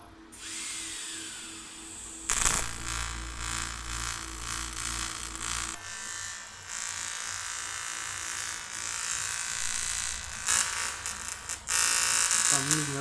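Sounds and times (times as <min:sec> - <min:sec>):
welding arc buzzing: 0:00.4 - 0:13.0.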